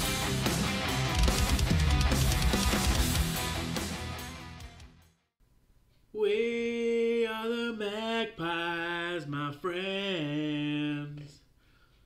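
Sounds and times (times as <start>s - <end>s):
man singing unaccompanied: 6.1s - 11.5s.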